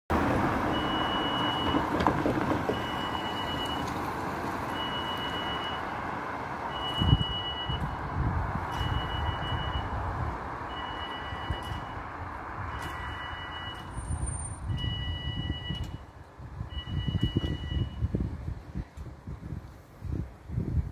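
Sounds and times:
road traffic noise: 0.1 - 20.9
level crossing alarm beeping: 0.7 - 1.8, 2.7 - 3.9, 4.7 - 5.9, 6.7 - 8.0, 8.7 - 10.0, 10.7 - 12.1, 12.7 - 14.0, 14.7 - 16.1, 16.7 - 18.1.

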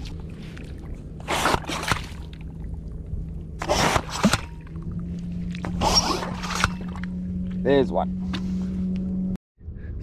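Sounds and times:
low steady hum: 0.0 - 10.0
bait pump sucking and squelching: 3.6 - 7.1.

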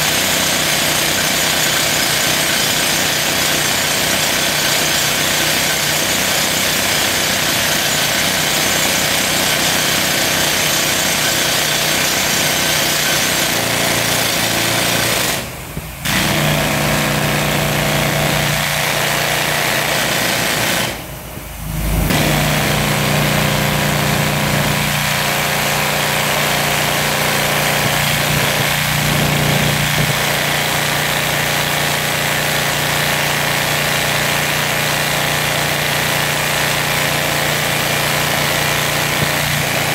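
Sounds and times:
rock drill hammering: 0.0 - 21.1, 22.1 - 39.9
steady engine tone: 21.0 - 30.6.

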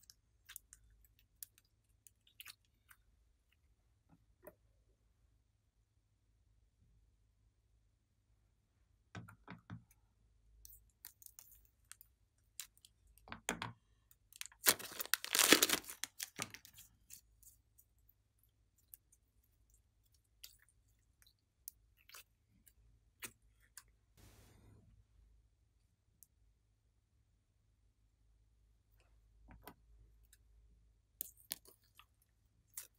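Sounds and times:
plastic bag crinkling: 14.4 - 16.6.

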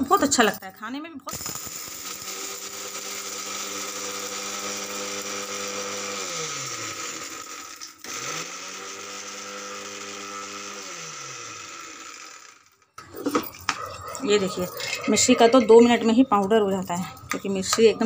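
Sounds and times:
electric mixer grinder running: 1.4 - 13.3.

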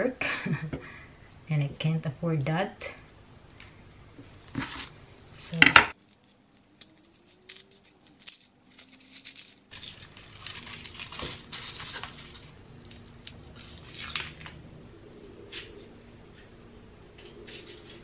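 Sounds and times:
papery skins crinkling: 5.9 - 14.6.

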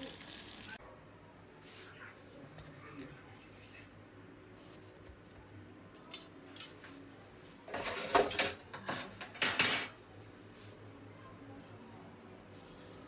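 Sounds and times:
metal cutlery clinking: 6.0 - 10.0.

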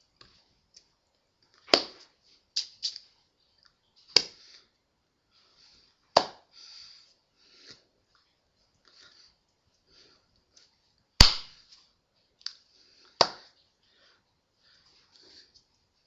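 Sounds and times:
hands clicking or slapping: 1.6 - 3.0, 4.1 - 4.5, 6.2 - 6.5, 11.2 - 11.7, 12.4 - 13.6.

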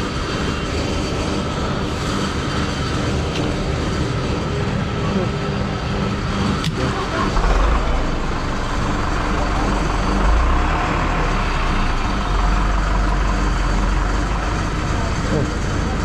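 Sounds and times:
fuel rushing through nozzle: 1.5 - 4.6, 7.2 - 15.8.

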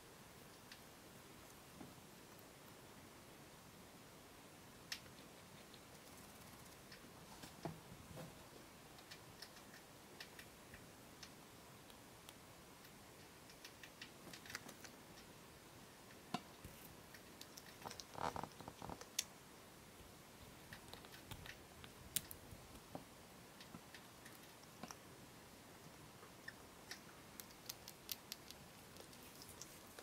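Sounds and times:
small animal nibbling clicks: 4.8 - 7.0, 8.9 - 15.3, 16.1 - 19.3, 20.6 - 22.9, 23.6 - 25.0, 26.4 - 30.0.

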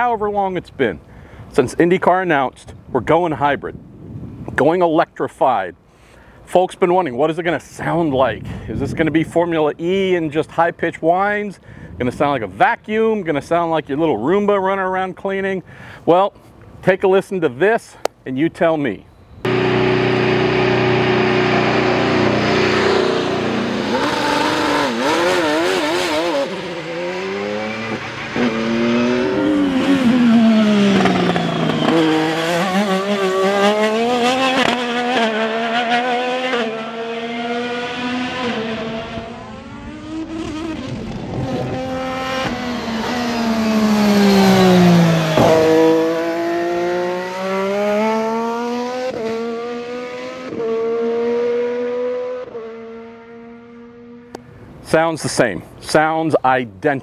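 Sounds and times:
race car engines shifting gears: 19.4 - 54.4.

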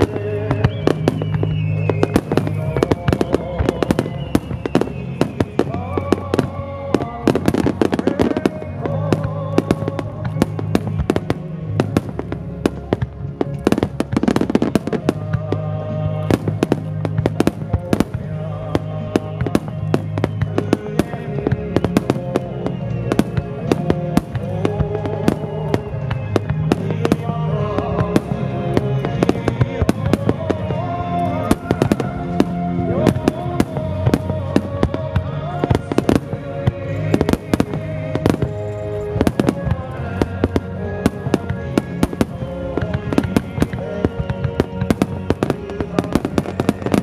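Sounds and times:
fireworks bangs: 0.0 - 47.0
music: 0.0 - 47.0.

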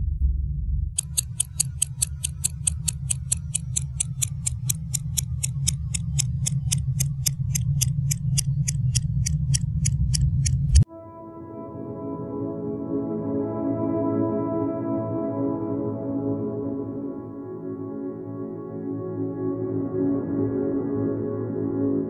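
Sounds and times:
clock ticking fast: 1.0 - 10.8
soft sustained music tones: 10.8 - 22.0.

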